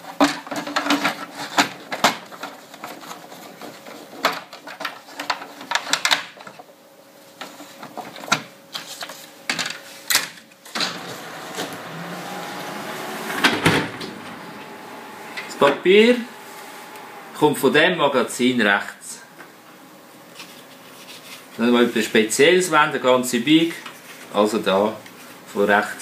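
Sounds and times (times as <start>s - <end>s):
steady machine whir: 10.8s - 20.6s.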